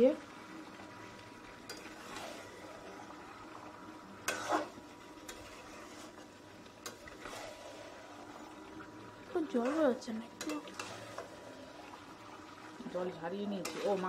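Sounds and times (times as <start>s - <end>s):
low sizzling: 0.0s - 14.0s
spoon stirring in pot: 1.6s - 2.7s, 4.2s - 12.7s, 13.4s - 14.0s.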